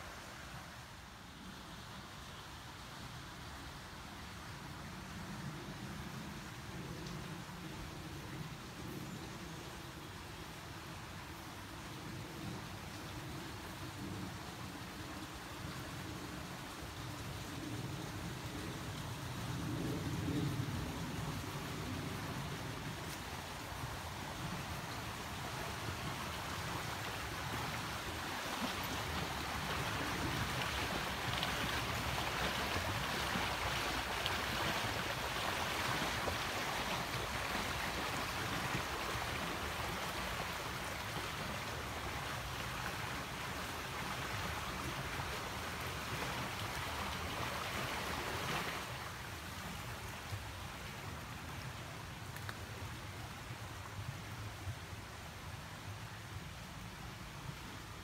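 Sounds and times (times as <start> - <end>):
stream water rushing: 21.1 - 58.0.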